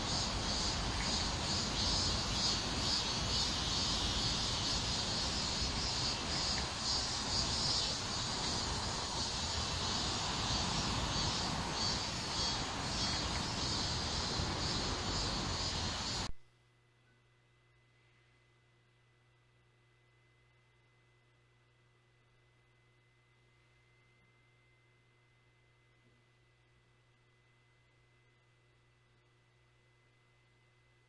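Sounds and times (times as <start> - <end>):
insects chirring: 0.0 - 16.3
low background noise: 0.0 - 31.0.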